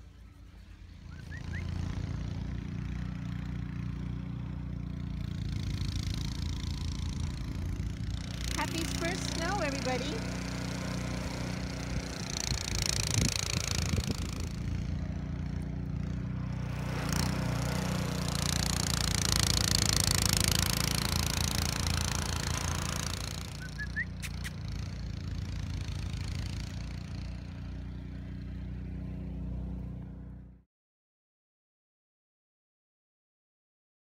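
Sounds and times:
engine running steadily: 0:00.0 - 0:30.6.

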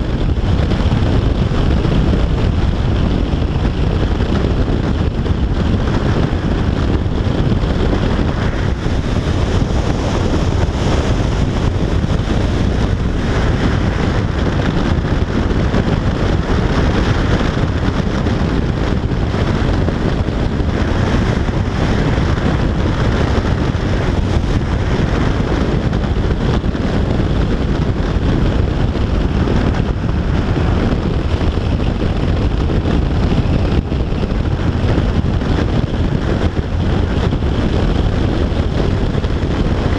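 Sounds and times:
motorcycle engine running: 0:00.0 - 0:39.9
wind rushing over microphone: 0:00.0 - 0:39.9.

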